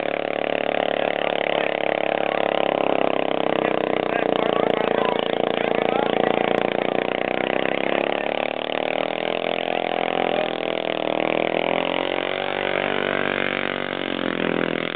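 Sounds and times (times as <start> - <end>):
atv engine running hard: 0.0 - 14.9.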